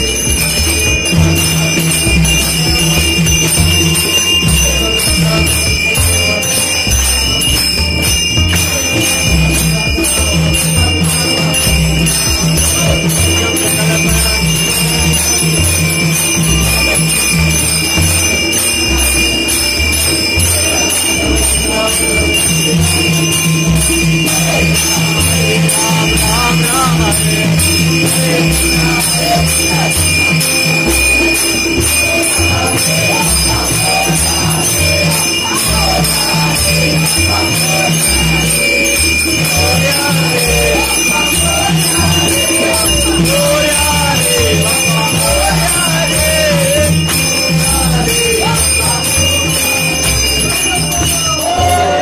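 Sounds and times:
low steady beat: 0:00.0 - 0:38.8
bell ringing: 0:00.0 - 0:52.0
rhythmic clapping: 0:00.0 - 0:52.0
voices: 0:00.0 - 0:52.0.

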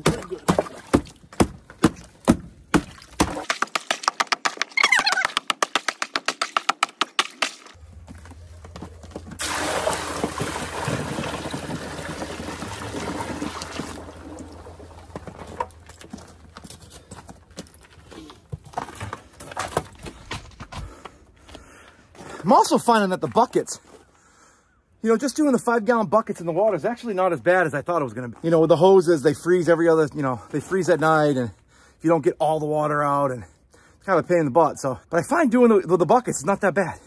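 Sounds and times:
ice cracking under strikes: 0:00.0 - 0:04.8
water pouring onto ice: 0:09.4 - 0:15.2.

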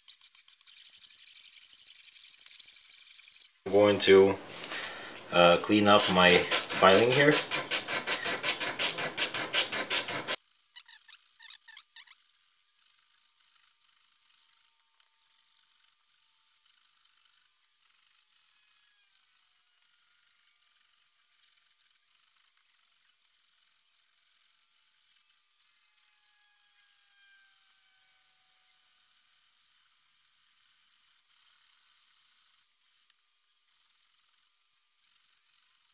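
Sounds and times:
sandpaper rubbing on metal: 0:05.5 - 0:10.4.

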